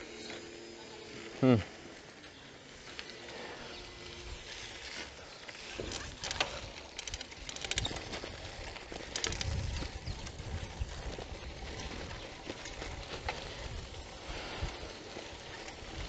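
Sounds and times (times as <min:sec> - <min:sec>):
bicycle rattling and clicking: 0:00.0 - 0:16.0
tyre noise: 0:01.4 - 0:16.0
wind rumble: 0:06.2 - 0:16.0.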